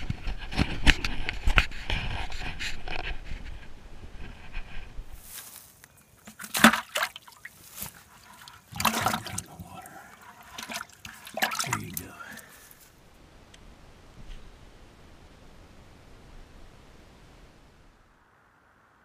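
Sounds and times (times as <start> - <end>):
fish splashing in a bucket: 6.2 - 12.6.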